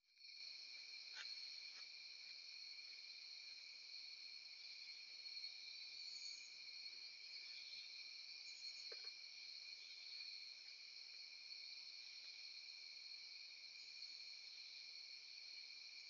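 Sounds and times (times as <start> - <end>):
crickets and night insects: 0.0 - 16.0.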